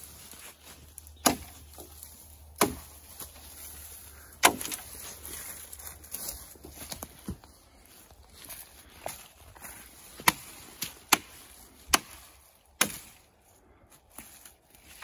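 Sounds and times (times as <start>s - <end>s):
footsteps through dry brush: 0.0s - 15.0s
wood snapping cracks: 1.0s - 3.4s, 4.3s - 5.0s, 10.2s - 13.1s.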